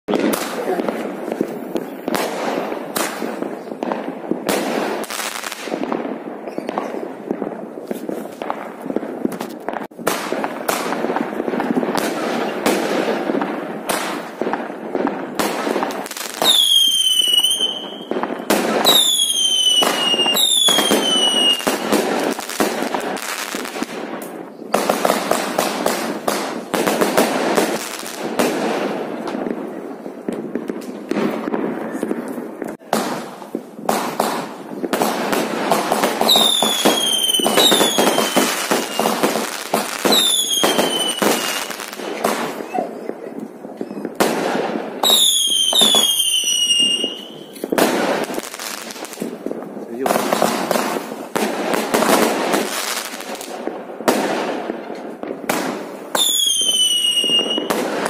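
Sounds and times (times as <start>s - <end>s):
fireworks popping and crackling: 0.0s - 58.0s
falling firework whistles: 16.3s - 21.9s, 36.2s - 41.9s, 45.0s - 48.4s, 56.1s - 58.0s.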